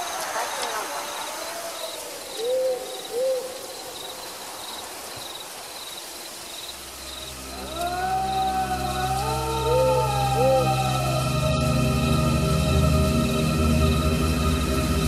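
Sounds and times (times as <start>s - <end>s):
insect chirping: 0.0s - 15.0s
slowly gliding tones: 6.7s - 15.0s
low music drone: 7.0s - 15.0s.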